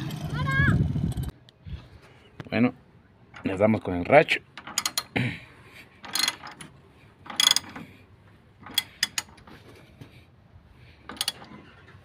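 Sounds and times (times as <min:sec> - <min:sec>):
ratchet wrench clicking: 0:06.0 - 0:06.6, 0:07.3 - 0:07.8, 0:08.6 - 0:09.4, 0:11.1 - 0:11.5.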